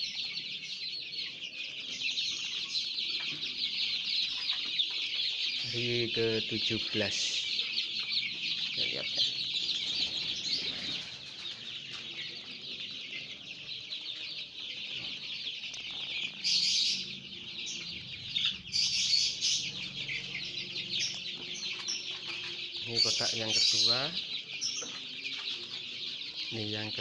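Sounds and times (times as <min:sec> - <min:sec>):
chicks peeping: 0:00.0 - 0:27.0.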